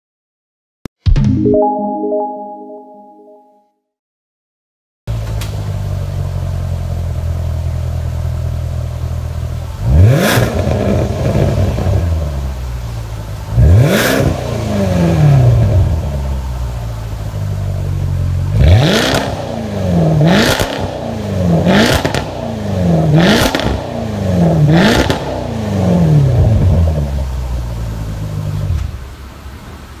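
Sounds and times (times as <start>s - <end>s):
car engine idling and revving: 5.1s - 30.0s.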